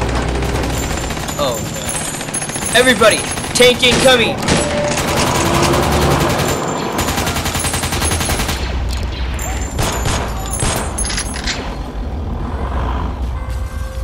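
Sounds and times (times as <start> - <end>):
machine-gun fire: 0.0 - 8.9, 9.8 - 11.2.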